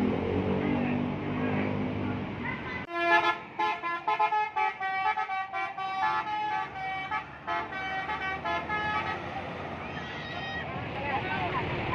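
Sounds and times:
musical air horn tune: 0:02.9 - 0:09.2.

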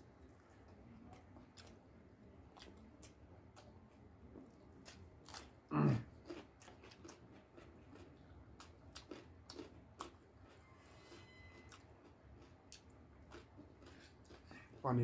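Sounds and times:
people chewing: 0:02.5 - 0:15.0.

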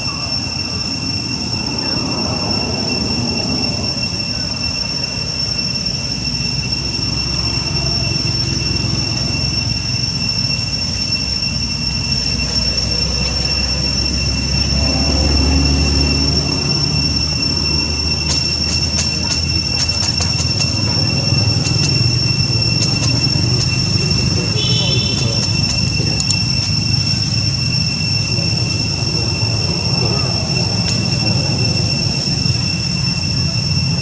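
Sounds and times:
high-pitched insect drone: 0:00.0 - 0:34.0.

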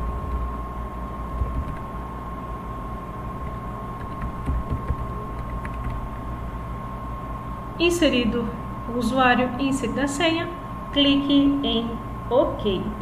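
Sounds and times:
low background hum and hiss: 0:00.0 - 0:13.0
computer keyboard clicks: 0:01.3 - 0:01.9, 0:03.4 - 0:06.0.

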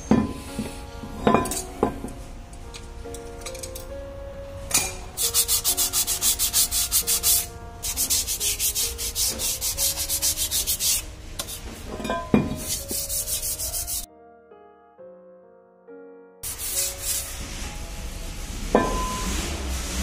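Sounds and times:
soft background music: 0:00.0 - 0:20.0
abrasive rubbing on metal: 0:05.2 - 0:14.1, 0:16.4 - 0:20.0.

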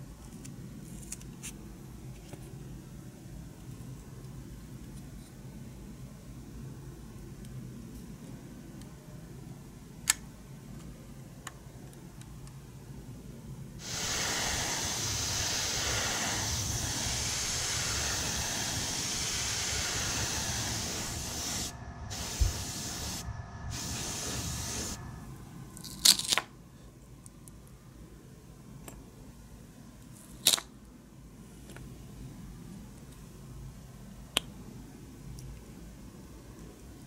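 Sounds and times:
airbrush spraying hiss: 0:13.8 - 0:25.3.

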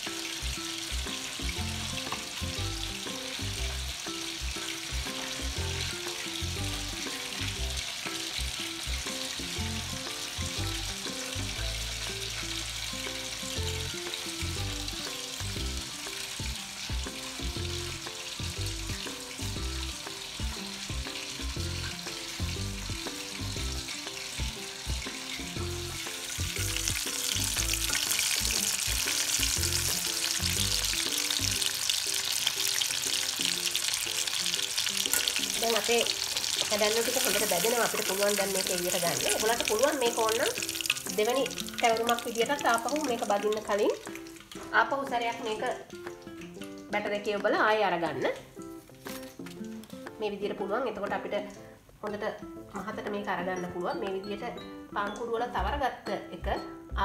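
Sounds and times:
hot oil sizzling: 0:00.0 - 0:55.6
background music: 0:00.0 - 0:57.0.

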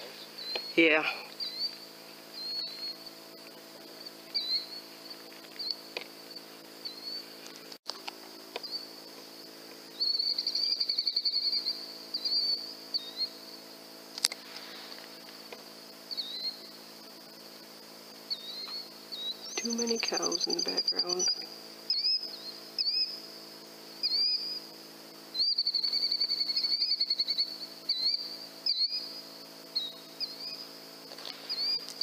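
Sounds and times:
crickets chirping: 0:00.0 - 0:32.0
rapid pulsing insect trill: 0:00.0 - 0:32.0.

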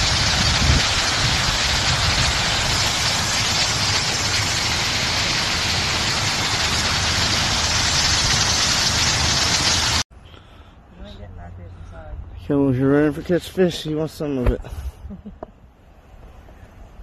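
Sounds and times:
water crashing onto rocks: 0:00.0 - 0:10.0.

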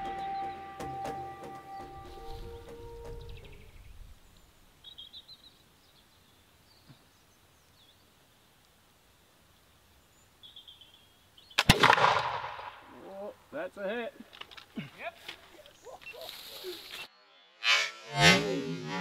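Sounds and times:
musket gunshot: 0:11.6 - 0:12.8.

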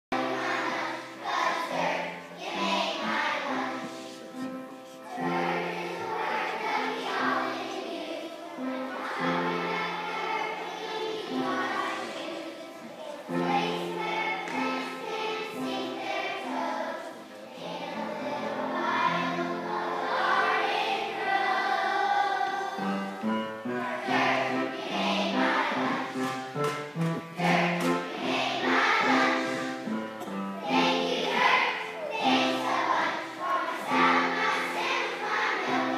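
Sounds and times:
children singing together: 0:00.1 - 0:35.9
hoedown instrumental music: 0:18.8 - 0:35.7.

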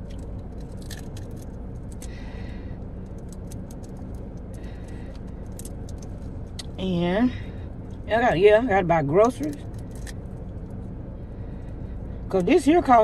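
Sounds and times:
person eating with clicks and smacks: 0:00.0 - 0:06.8, 0:09.2 - 0:10.6
car engine idling: 0:00.0 - 0:13.0.

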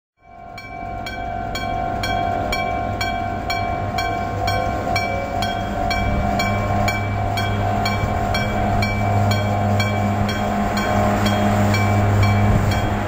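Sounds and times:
level crossing bell ringing: 0:00.2 - 0:13.0
low steady rumble: 0:00.7 - 0:13.0.

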